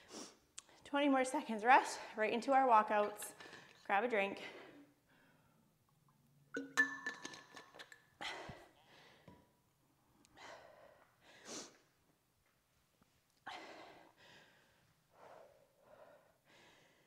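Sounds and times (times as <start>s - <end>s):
metal water bottle clinking: 6.6s - 8.1s.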